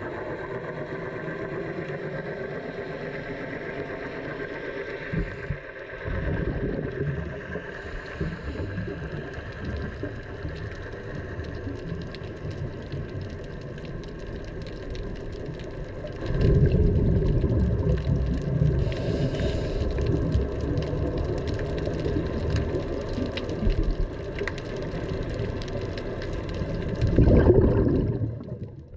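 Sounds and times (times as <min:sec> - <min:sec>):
boat engine running: 0:00.0 - 0:08.5
water noise: 0:00.0 - 0:28.9.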